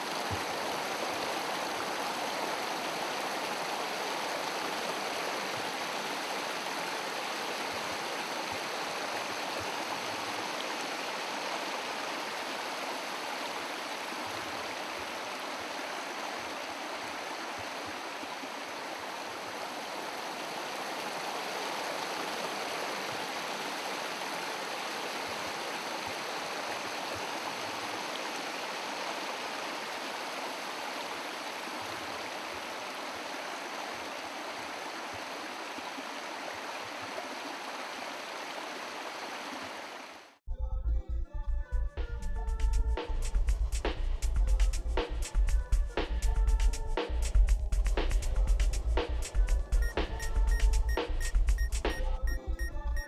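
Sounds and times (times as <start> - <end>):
stream rushing over stones: 0.0 - 40.4.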